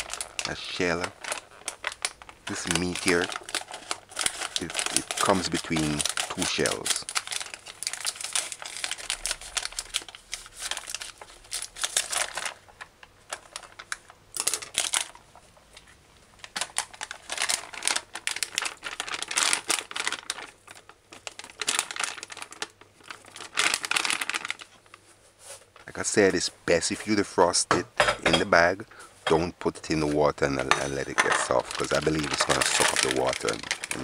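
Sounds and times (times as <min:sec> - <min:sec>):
plastic bag crinkling: 0:00.0 - 0:27.6, 0:28.5 - 0:34.0
scissors cutting plastic: 0:30.6 - 0:34.0.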